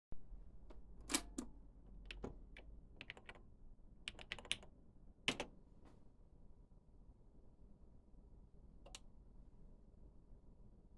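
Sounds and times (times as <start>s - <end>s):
keyboard keystrokes: 2.1s - 3.4s, 4.1s - 4.7s.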